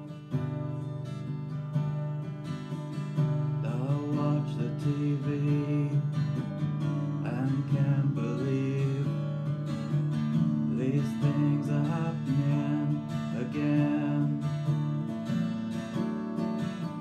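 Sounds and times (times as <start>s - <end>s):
acoustic guitar strumming: 0.0s - 17.0s
man singing: 3.6s - 9.8s, 10.4s - 15.2s.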